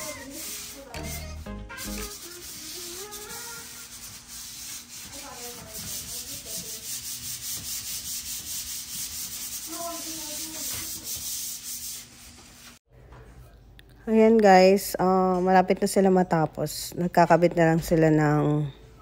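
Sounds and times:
sandpaper rubbing on wood: 0:00.0 - 0:12.8.

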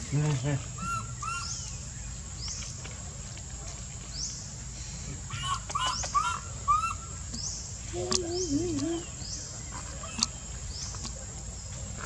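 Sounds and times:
baby monkey crying: 0:00.8 - 0:01.6, 0:05.3 - 0:07.0.

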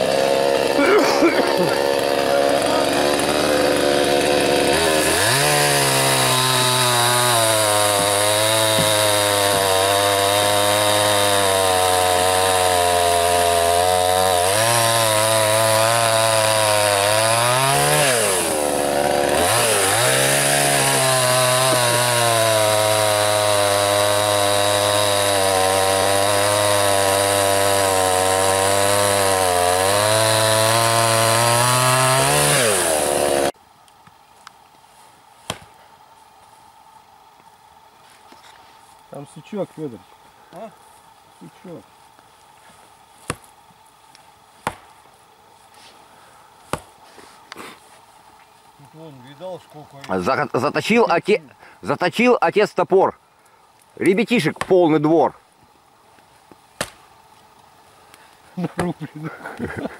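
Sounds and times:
chainsaw cutting through tree trunk: 0:00.0 - 0:33.6.

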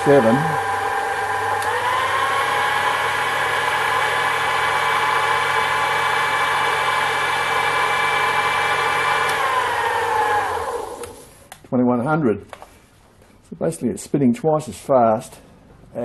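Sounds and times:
lathe motor whining: 0:00.0 - 0:11.3.

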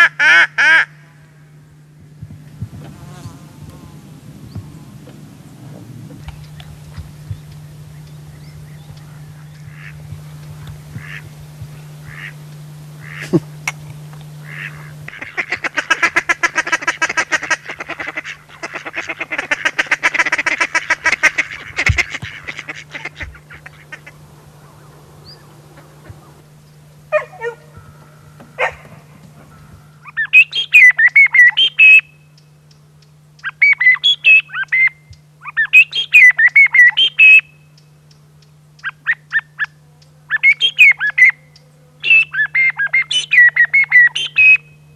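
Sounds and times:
ducks quacking: 0:08.9 - 0:12.4, 0:13.0 - 0:26.5
bird call whistle chirping: 0:29.5 - 0:32.3, 0:33.4 - 0:37.7, 0:40.3 - 0:41.4, 0:42.0 - 0:44.9.

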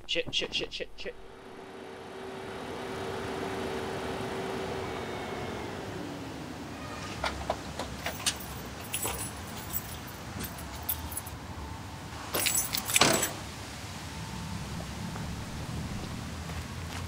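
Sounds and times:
keys jangling: 0:08.0 - 0:11.4, 0:12.3 - 0:13.4.

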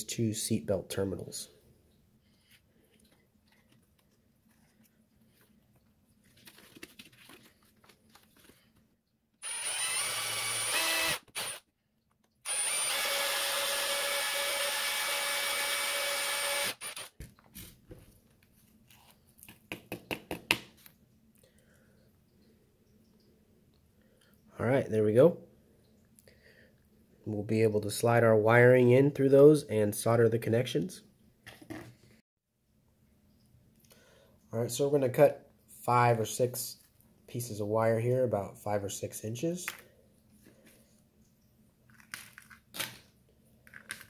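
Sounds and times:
cordless drill drilling metal: 0:09.4 - 0:11.7, 0:12.4 - 0:17.2.

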